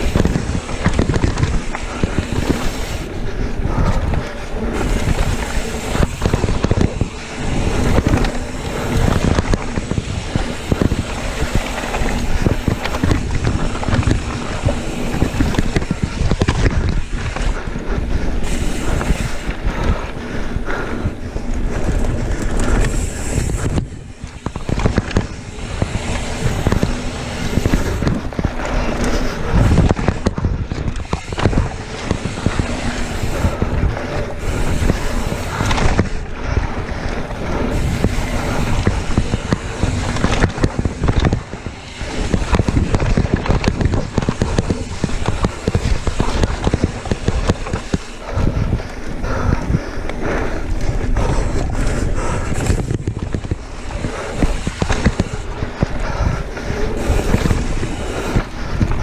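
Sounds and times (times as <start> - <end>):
bike clattering and rattling: 0.0 - 59.0
tyres rumbling over dirt trail: 0.0 - 59.0
wind buffeting microphone: 0.0 - 59.0.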